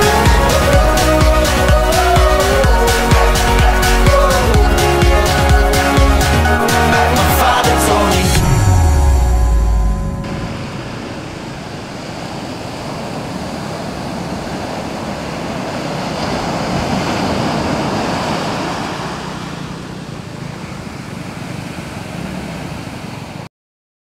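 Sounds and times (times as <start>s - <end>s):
ocean surf washing on sand: 10.3s - 23.5s.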